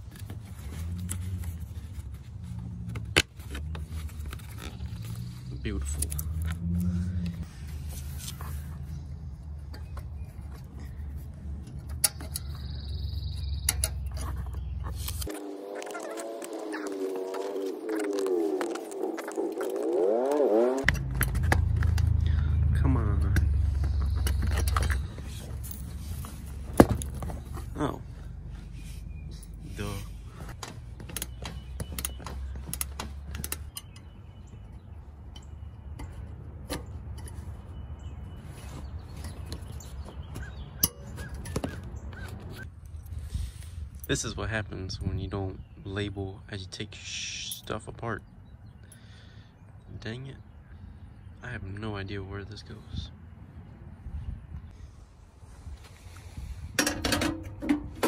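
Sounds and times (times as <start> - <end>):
metal brackets clicking: 11.5 - 12.7, 13.6 - 15.4
high buzzing trill: 15.3 - 20.8.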